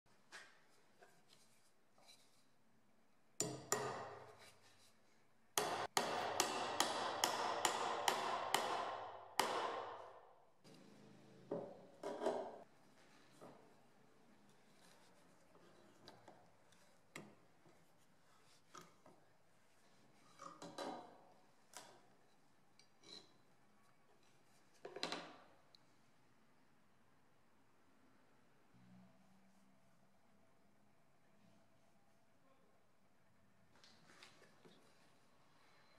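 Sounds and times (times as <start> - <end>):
hammer striking a nail: 3.4 - 4.3, 5.6 - 10.2.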